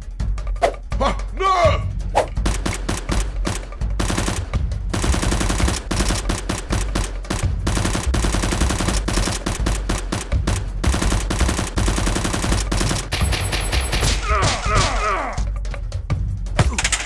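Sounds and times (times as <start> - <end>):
automatic gunfire bursts: 2.4 - 14.2.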